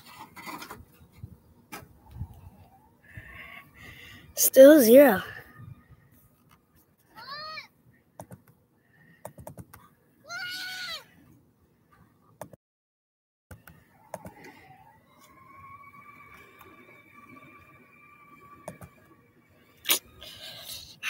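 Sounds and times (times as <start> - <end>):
faint steady whine: 0.0 - 10.3, 13.5 - 21.0
laptop keyboard typing: 8.2 - 8.5, 9.2 - 9.8, 13.5 - 14.4, 18.6 - 18.9
high-pitched cries: 10.2 - 11.1.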